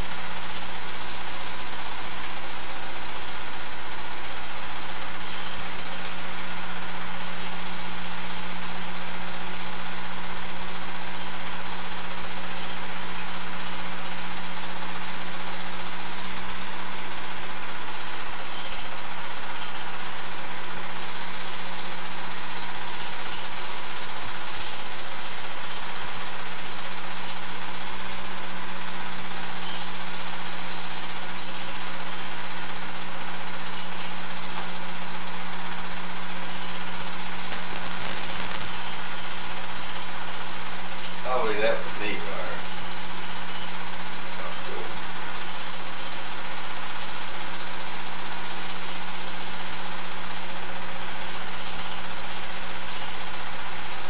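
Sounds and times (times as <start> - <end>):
film projector running: 0.0 - 54.0.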